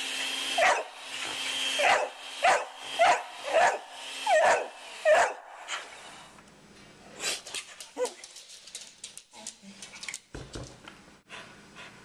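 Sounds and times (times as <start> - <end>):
electric mixer whining: 0.0 - 5.0
dog barking: 0.6 - 0.9, 1.8 - 5.4.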